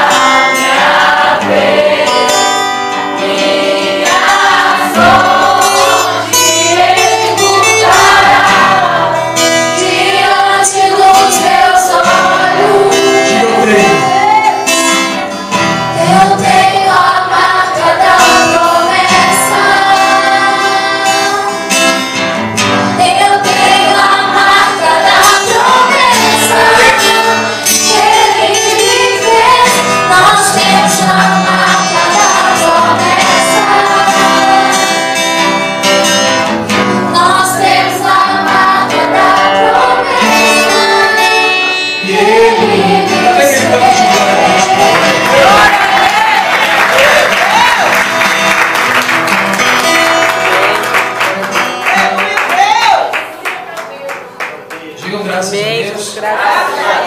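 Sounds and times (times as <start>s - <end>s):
acoustic guitar: 0.0s - 57.0s
woman singing gospel song: 10.2s - 14.8s, 16.0s - 21.6s, 23.0s - 34.8s, 37.0s - 46.5s.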